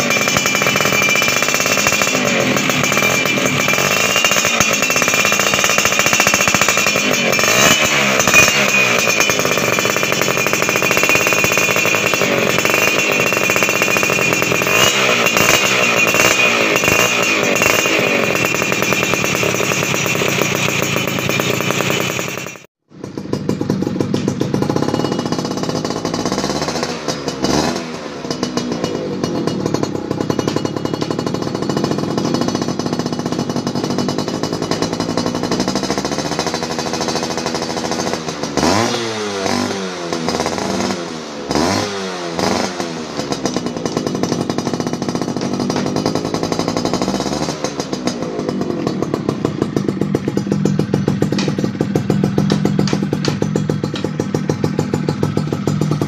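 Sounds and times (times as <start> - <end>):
engine revving blips: 0.0 - 33.0, 33.8 - 45.0
two-stroke motorcycle engine idling: 0.0 - 56.0.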